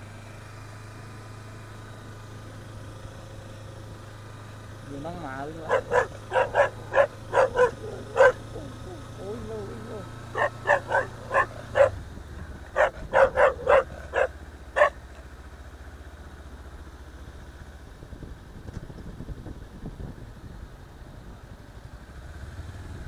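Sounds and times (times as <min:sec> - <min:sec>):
dog barking: 0:05.6 - 0:08.9, 0:10.3 - 0:12.0, 0:12.7 - 0:15.0.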